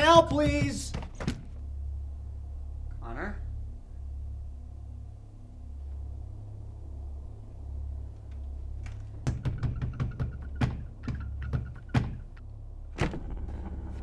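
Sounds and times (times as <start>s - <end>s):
knocks and thuds on a door: 0.0s - 1.6s, 9.1s - 12.4s
low steady hum: 0.0s - 14.0s.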